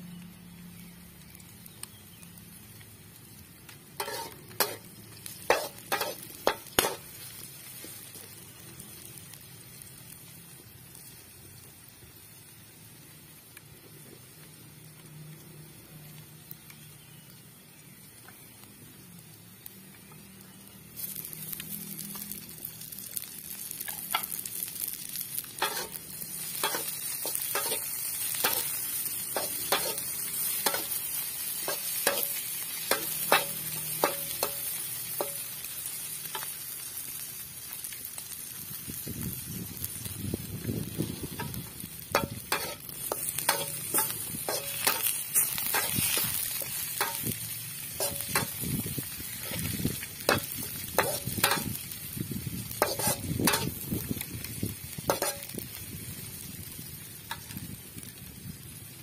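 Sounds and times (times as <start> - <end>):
food sizzling in a wok: 0.0 - 59.0
metal spatula scraping a pan: 4.0 - 7.2, 25.6 - 35.4, 41.4 - 47.4, 48.0 - 48.7, 49.3 - 51.8, 52.8 - 53.8, 55.1 - 55.5.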